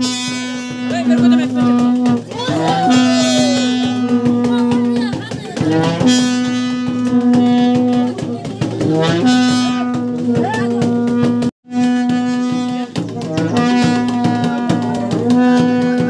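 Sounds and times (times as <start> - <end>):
brass horn long notes: 0.0 - 16.0
drum beating steadily: 0.0 - 16.0.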